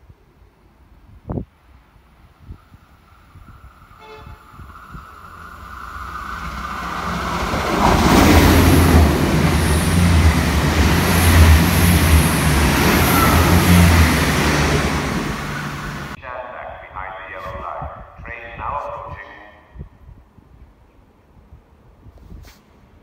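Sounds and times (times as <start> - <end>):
low train rumble: 0.0 - 22.1
train wheels rushing on rail: 2.5 - 16.2.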